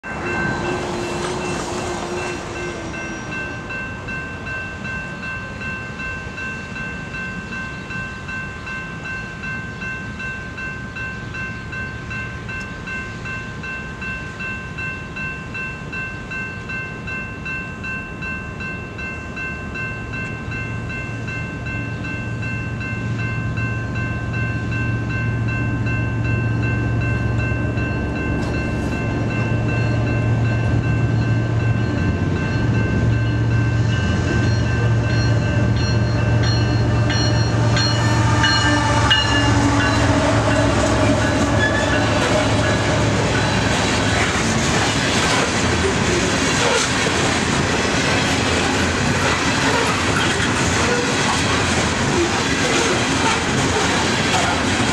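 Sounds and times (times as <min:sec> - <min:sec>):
diesel locomotive rumble: 0:00.0 - 0:07.2, 0:20.1 - 0:54.9
high-pitched pulsing ringing: 0:00.0 - 0:43.6.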